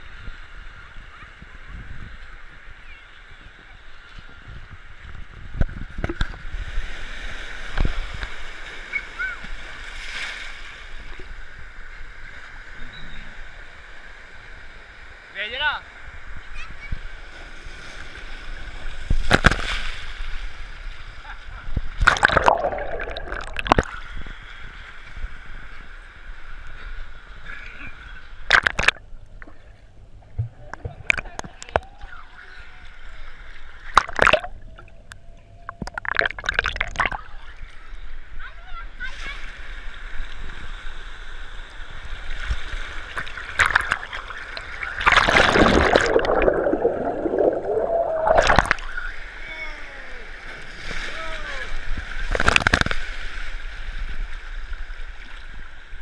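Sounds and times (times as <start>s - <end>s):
pool water splashing: 13.4s - 26.4s, 27.1s - 37.9s, 38.6s - 56.0s
muffled underwater wash: 15.9s - 56.0s
water splashing: 21.8s - 24.3s, 28.4s - 37.6s, 42.3s - 49.4s
muffled underwater bubbling: 22.0s - 24.0s, 28.5s - 31.9s, 33.9s - 37.4s, 43.2s - 49.1s.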